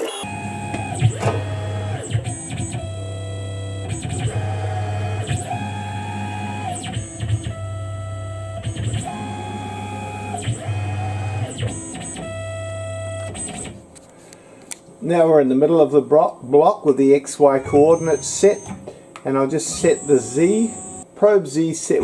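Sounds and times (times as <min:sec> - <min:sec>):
machine axis motors whining: 0:00.0 - 0:13.8, 0:17.4 - 0:21.1.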